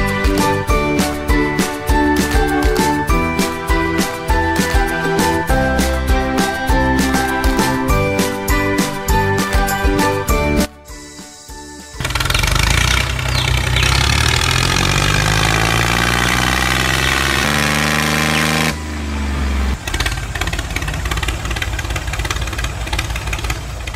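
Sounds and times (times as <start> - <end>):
tractor engine running: 11.9 - 23.9.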